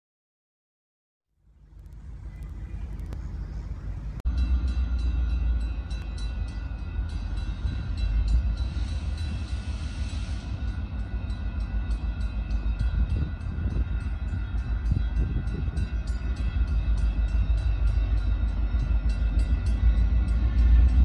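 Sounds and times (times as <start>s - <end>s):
diesel locomotive rumbling: 1.4s - 21.0s
crossing bell ringing: 4.3s - 21.0s.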